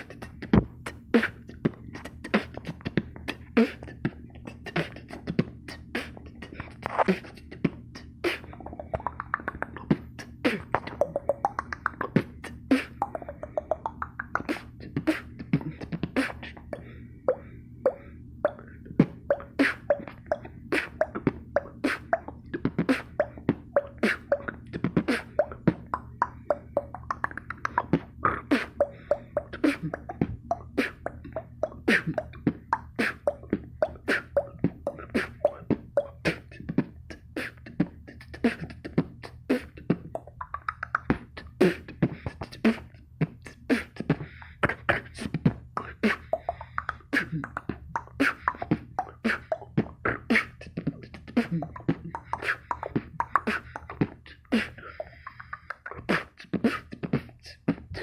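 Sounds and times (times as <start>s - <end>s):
beatboxed water-drop pops: 8.3s - 16.5s, 17.9s - 45.1s.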